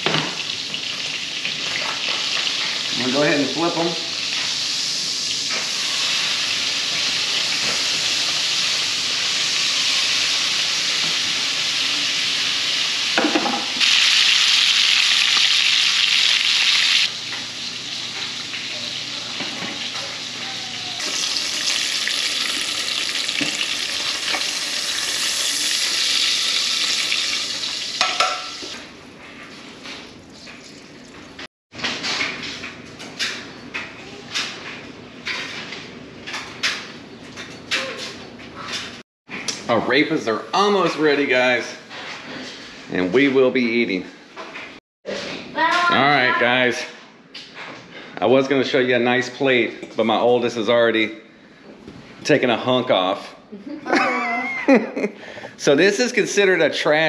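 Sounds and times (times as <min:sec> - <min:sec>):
fish sizzling in a pan: 0:00.2 - 0:20.4, 0:21.0 - 0:28.7.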